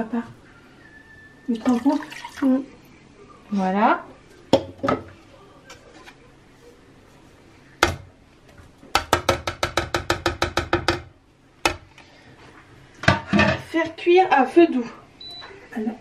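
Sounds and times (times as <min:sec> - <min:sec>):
plastic tub knocking on saucepan: 0:04.5 - 0:05.1, 0:08.9 - 0:11.1.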